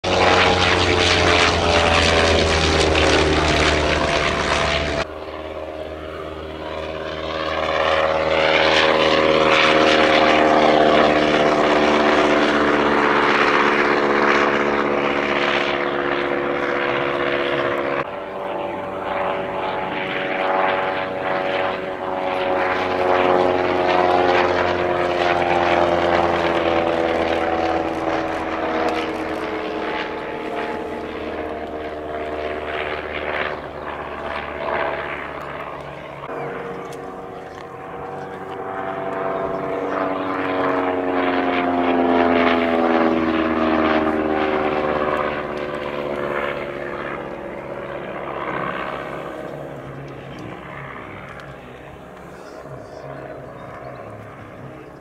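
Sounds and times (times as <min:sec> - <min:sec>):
aircraft rotary engine droning: 0:00.0 - 0:55.0.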